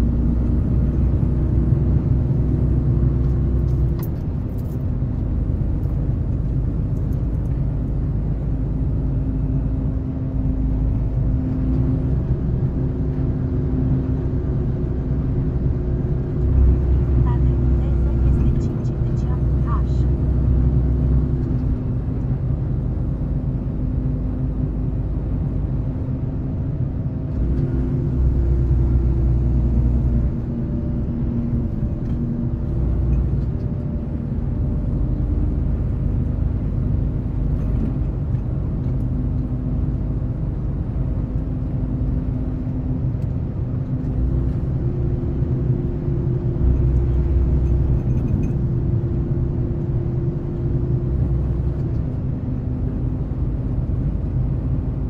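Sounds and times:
vehicle engine rumbling: 0:00.0 - 0:55.0.

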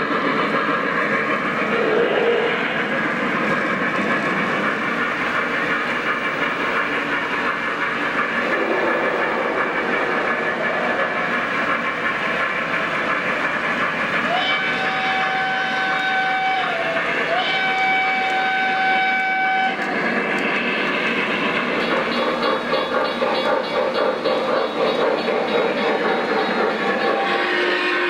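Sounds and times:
model trains rumbling on track: 0:00.0 - 0:28.0
electronic steam whistle: 0:14.2 - 0:20.0, 0:26.9 - 0:28.0.

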